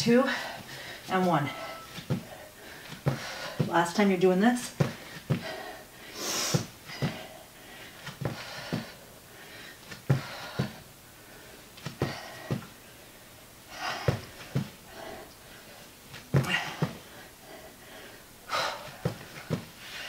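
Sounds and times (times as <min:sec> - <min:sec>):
hard breathing: 0:00.1 - 0:03.8, 0:04.8 - 0:20.0
feet thumping on floor: 0:01.9 - 0:03.9, 0:04.7 - 0:05.7, 0:06.5 - 0:07.3, 0:08.0 - 0:09.0, 0:09.9 - 0:10.8, 0:11.8 - 0:12.7, 0:13.8 - 0:14.8, 0:16.1 - 0:17.1, 0:18.8 - 0:19.8.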